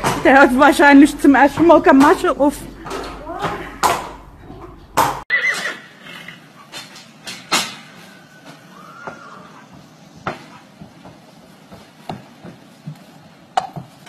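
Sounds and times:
horse hooves knocking in trailer: 0.0 - 5.2, 9.0 - 14.0.

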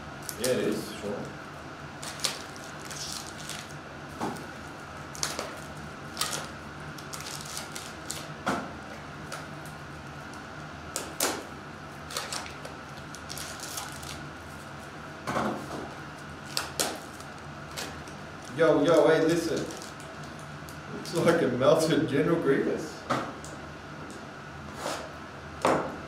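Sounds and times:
card packs crinkling and rustling: 2.0 - 3.8, 4.4 - 8.4, 12.0 - 14.3, 16.4 - 20.4.

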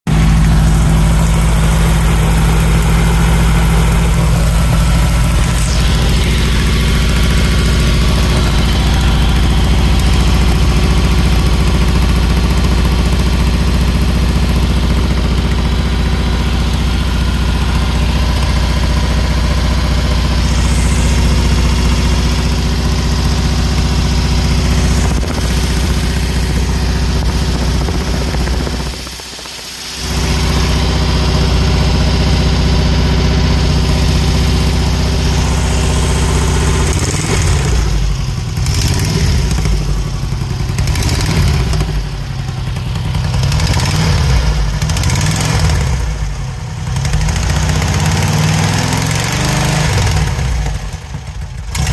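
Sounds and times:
air-cooled engine running: 0.0 - 51.9
exhaust leak: 0.1 - 46.3.

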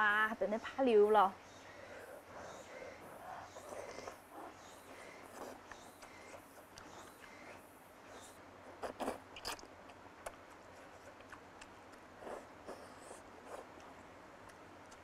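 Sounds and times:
biting and chewing food: 3.6 - 15.0.

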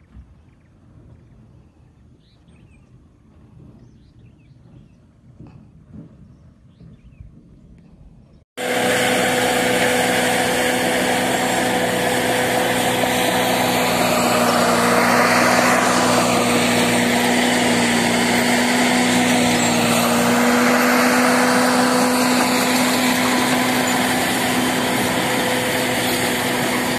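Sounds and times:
construction machinery engine running: 8.6 - 26.9.

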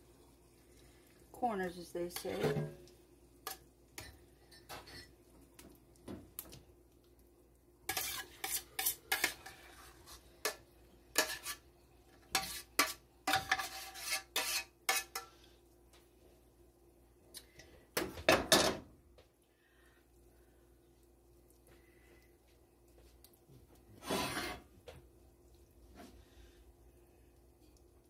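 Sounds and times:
metal spoon scraping and clinking: 7.9 - 9.7, 10.4 - 11.6, 12.3 - 15.3.

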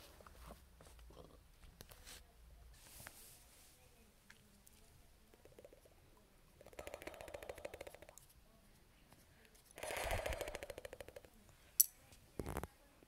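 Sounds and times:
kitten purring: 6.6 - 8.2.

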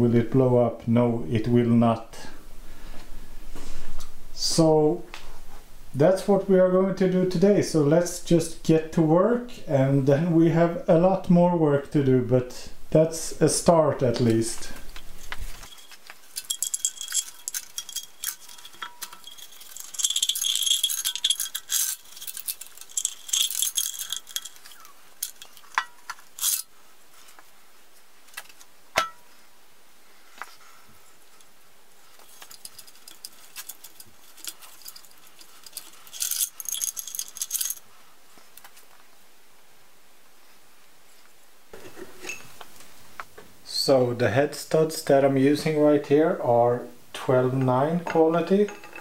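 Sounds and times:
metal parts clattering: 15.1 - 26.7, 32.2 - 37.8, 48.1 - 49.0.

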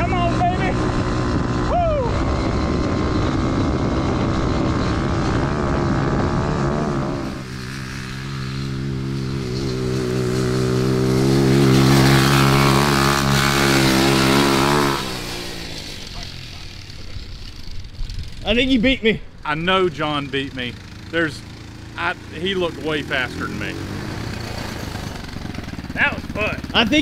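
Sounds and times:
go-kart engine running hard: 0.0 - 27.0
wind noise: 17.1 - 19.5.

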